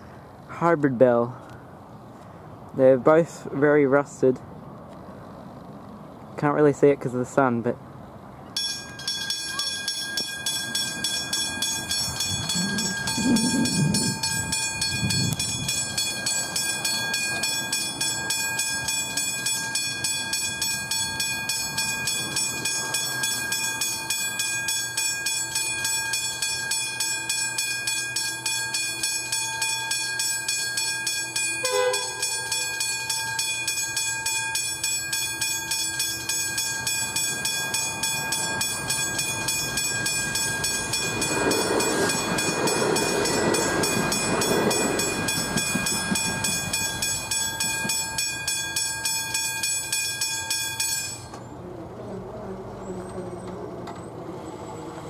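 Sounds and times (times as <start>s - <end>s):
train approaching: 0.0s - 55.0s
level crossing warning bells: 8.5s - 51.6s.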